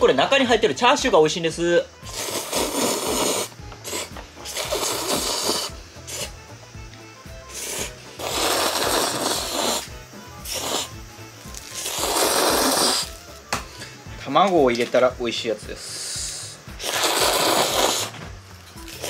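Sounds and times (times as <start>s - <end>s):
background music: 0.0s - 19.0s
person slurping noodles: 2.0s - 6.4s, 7.4s - 13.2s, 16.3s - 18.2s.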